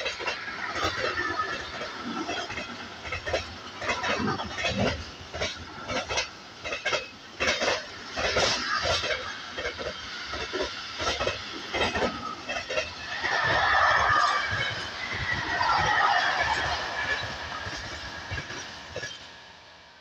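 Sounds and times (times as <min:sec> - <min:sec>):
wheels clattering and clanking: 0:00.0 - 0:19.2
freight train rumble: 0:00.0 - 0:20.0
wavering wheel squeal: 0:11.9 - 0:19.2.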